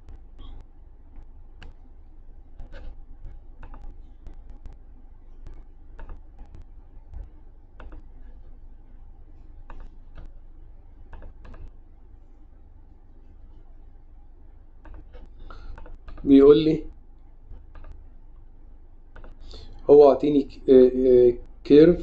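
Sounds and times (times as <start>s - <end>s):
low steady hum: 0.0s - 22.0s
mouse and keyboard clicks: 3.6s - 4.8s, 5.4s - 8.1s, 11.1s - 11.7s, 14.8s - 16.3s, 17.5s - 18.0s, 19.1s - 19.4s.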